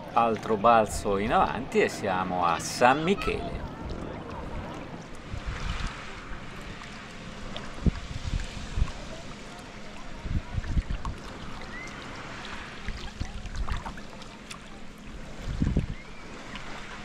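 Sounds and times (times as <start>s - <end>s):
water splashing around paddle: 3.4s - 17.0s
wind thumps on microphone: 15.4s - 16.0s.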